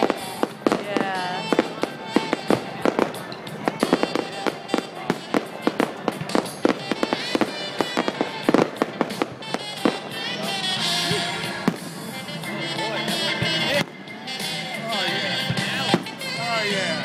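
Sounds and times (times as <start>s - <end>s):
fireworks bursting with sharp bangs: 0.0s - 12.5s, 13.1s - 14.8s, 15.4s - 16.4s.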